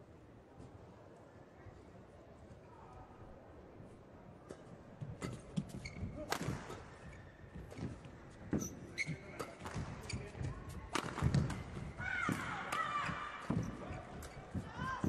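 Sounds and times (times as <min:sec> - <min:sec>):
shoes squeaking on court: 0:05.2 - 0:11.8, 0:13.0 - 0:15.0.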